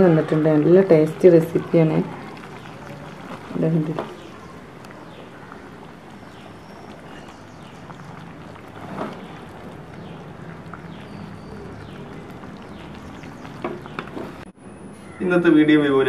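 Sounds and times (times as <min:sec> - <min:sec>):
thick curry simmering: 0:00.0 - 0:14.5
wooden spatula stirring: 0:00.0 - 0:14.5.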